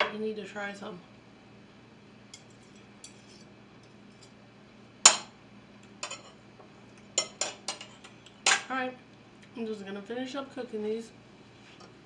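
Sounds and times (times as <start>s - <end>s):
cutlery clinking on a plate: 6.0s - 6.4s, 7.2s - 8.7s.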